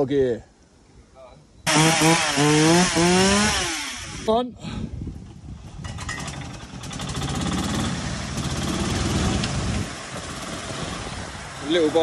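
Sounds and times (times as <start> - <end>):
buggy engine labouring: 5.9 - 12.0.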